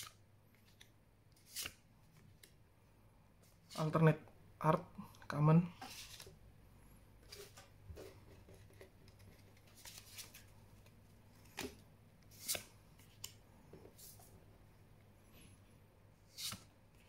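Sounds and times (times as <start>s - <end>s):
cards sliding on cards: 11.4s - 13.4s, 16.3s - 16.7s.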